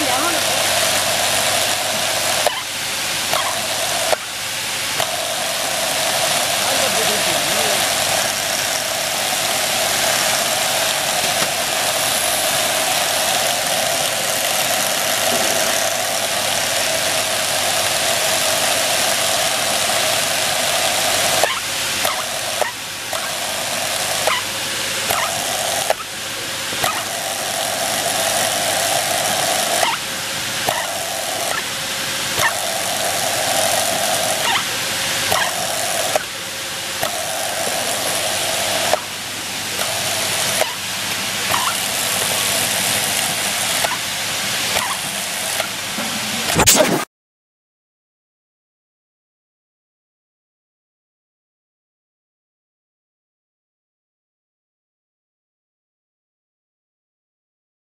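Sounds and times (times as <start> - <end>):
drill press running: 0.0 - 29.8, 30.4 - 47.0
sharp metallic click: 46.0 - 47.1.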